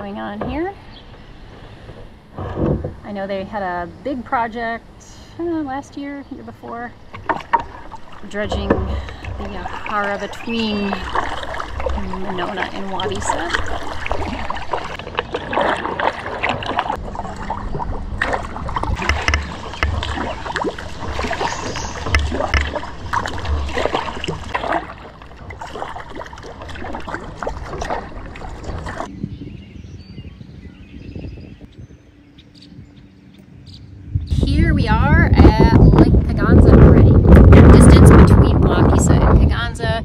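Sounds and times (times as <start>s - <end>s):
water sloshing along hull: 0.0s - 40.0s
paddle splashing in water: 7.0s - 29.1s.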